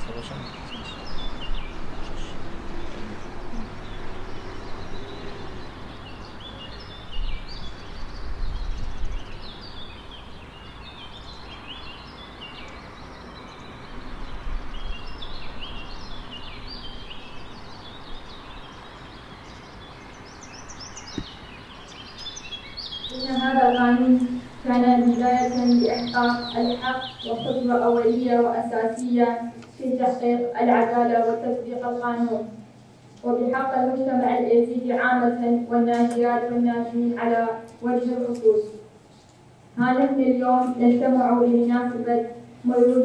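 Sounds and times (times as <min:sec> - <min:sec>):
small birds chirping: 0:00.0 - 0:43.0
wind buffeting microphone: 0:07.0 - 0:10.5.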